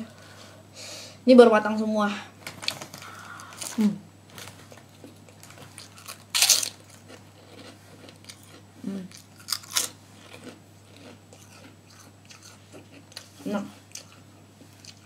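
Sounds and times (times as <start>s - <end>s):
cracker crunching: 2.4s - 13.3s
quiet chewing: 2.5s - 15.0s.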